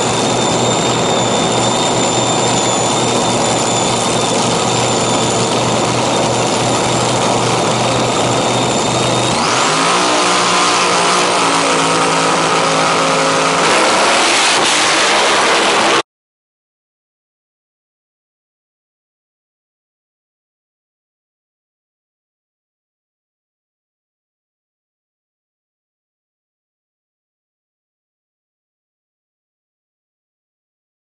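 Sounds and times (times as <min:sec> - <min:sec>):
dragster engine whining: 0:00.0 - 0:16.0.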